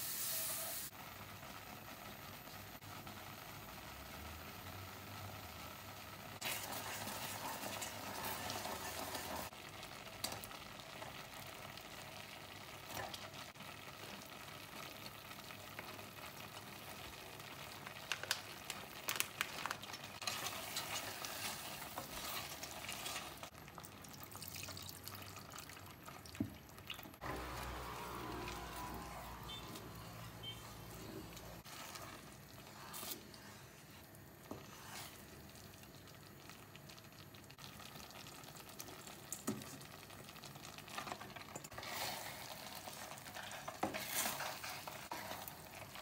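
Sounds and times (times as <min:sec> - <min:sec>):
sauce simmering in a pot: 0:00.2 - 0:46.0
spoon stirring and scraping: 0:20.2 - 0:23.5, 0:28.4 - 0:35.8, 0:41.0 - 0:46.0
milk pouring: 0:22.4 - 0:30.4.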